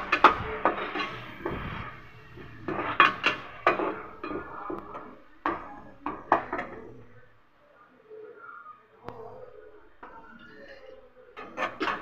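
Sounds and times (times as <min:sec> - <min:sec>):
metal spoon scraping metal pan: 0:00.0 - 0:06.4.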